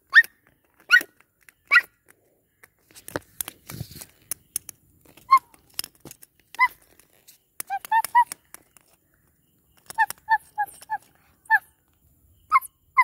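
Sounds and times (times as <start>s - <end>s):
high-pitched yips: 0.9s - 1.9s, 7.7s - 8.4s, 9.9s - 11.7s.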